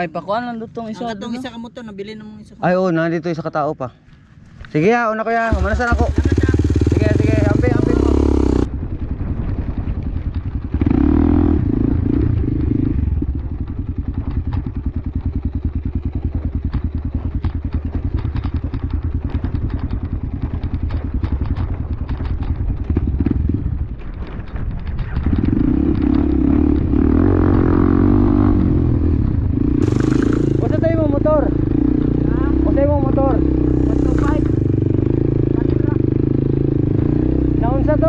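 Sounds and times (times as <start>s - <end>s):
dirt bike engine revving: 5.3s - 8.7s, 10.7s - 23.8s, 25.1s - 38.0s.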